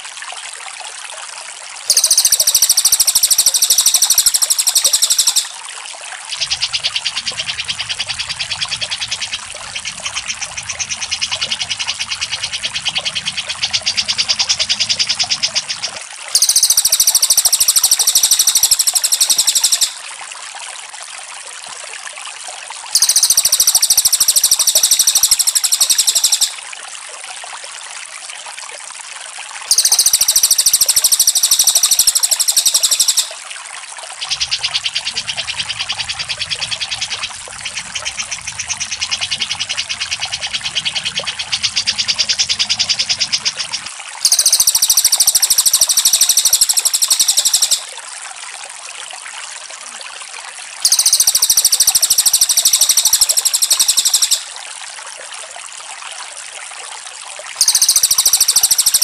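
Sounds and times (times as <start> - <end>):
loud high bird trills: 1.9 - 5.6, 16.4 - 20.0, 23.0 - 26.6, 29.7 - 33.4, 44.2 - 47.9, 50.8 - 54.5
rapid high ticking trill: 1.9 - 5.6, 16.4 - 20.0, 23.0 - 26.6, 29.7 - 33.4, 44.2 - 47.9, 50.8 - 54.5, 57.6 - 59.0.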